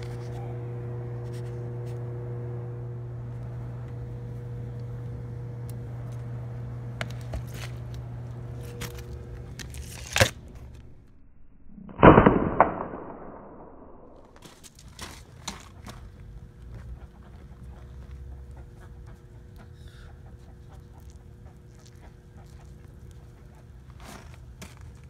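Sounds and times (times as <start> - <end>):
air rifle shot: 11.9 - 13.8.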